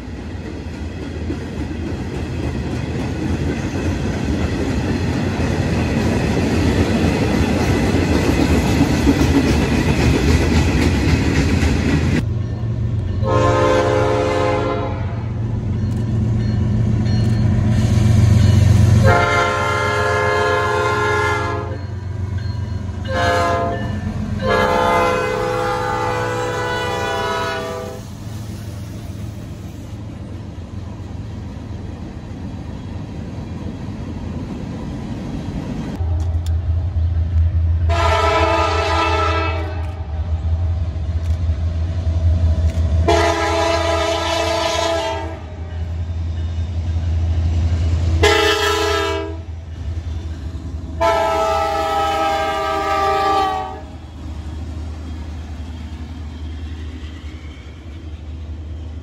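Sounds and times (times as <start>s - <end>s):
diesel locomotive droning: 0.0s - 59.0s
passing train rumble: 0.0s - 59.0s
locomotive horn: 13.2s - 15.4s, 19.0s - 21.8s, 23.1s - 28.1s, 37.9s - 40.1s, 43.0s - 45.8s, 48.2s - 49.5s, 51.0s - 54.0s.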